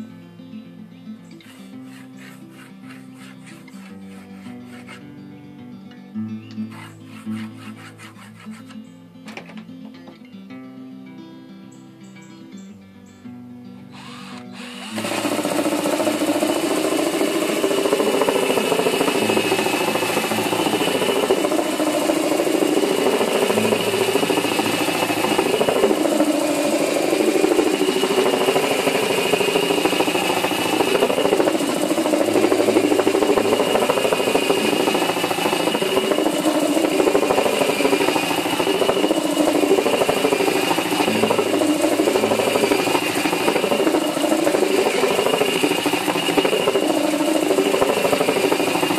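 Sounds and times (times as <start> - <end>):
drill motor whine: 1.4 - 5.0, 14.0 - 48.9
sandpaper sanding wood: 1.4 - 5.1, 6.7 - 8.8, 14.7 - 48.9
drum rattling: 14.6 - 48.9.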